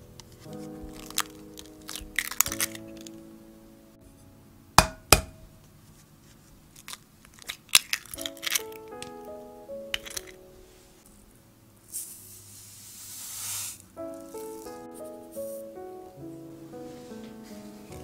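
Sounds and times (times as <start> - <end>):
gentle background music: 0.0 - 11.8, 13.8 - 18.0
eggshell crackling: 0.2 - 3.3, 6.6 - 10.8, 13.6 - 15.7.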